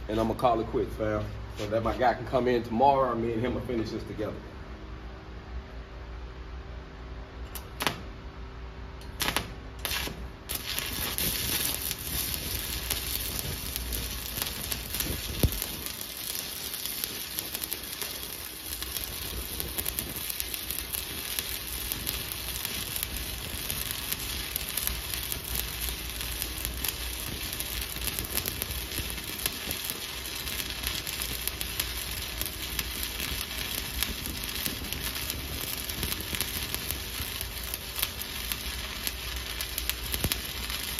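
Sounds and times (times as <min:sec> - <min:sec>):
sharp cracks of arc striking: 0:07.6 - 0:08.1, 0:09.1 - 0:40.9
welding arc crackling: 0:07.6 - 0:08.1, 0:09.0 - 0:40.9.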